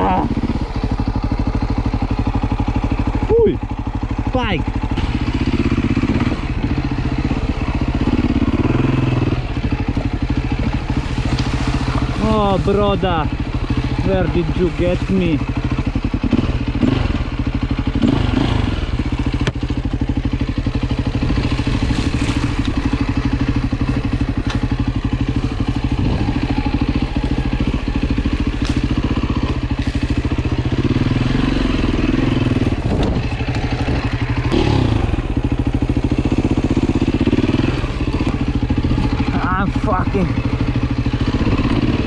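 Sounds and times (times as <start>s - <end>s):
dirt bike engine revving: 0.0s - 42.0s
light knocks of bike: 19.3s - 19.9s, 23.9s - 25.3s, 28.2s - 30.3s.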